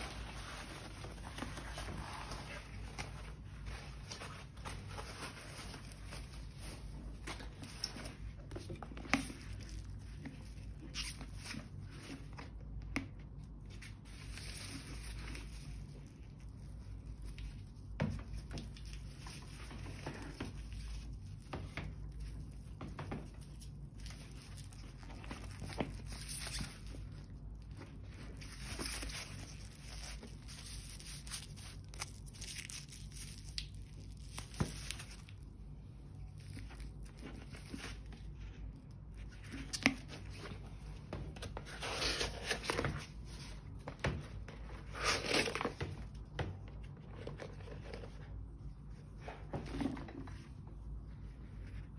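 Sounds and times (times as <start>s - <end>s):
plastic wrapping crinkling: 0.0s - 12.2s, 22.0s - 39.2s
low steady hum: 0.0s - 51.9s.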